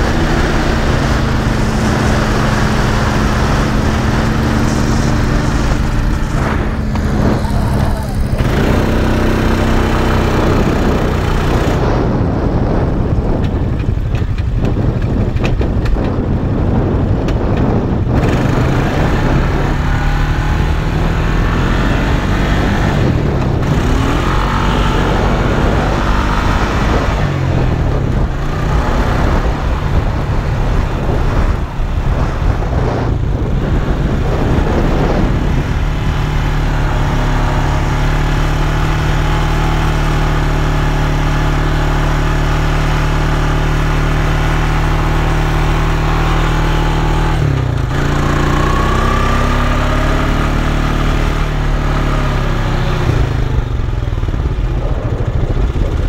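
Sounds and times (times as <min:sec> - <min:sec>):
quad bike engine running: 0:00.0 - 0:56.0
wind on microphone: 0:00.0 - 0:56.0.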